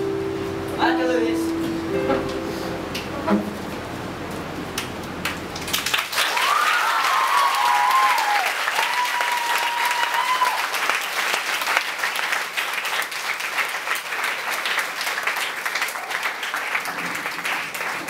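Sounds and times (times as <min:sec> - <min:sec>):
children applauding: 0:05.2 - 0:18.0.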